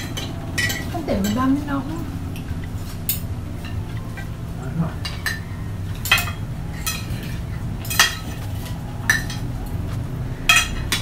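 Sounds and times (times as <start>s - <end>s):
cutlery clinking on plates: 0.0s - 1.5s, 5.0s - 9.6s, 10.5s - 11.0s.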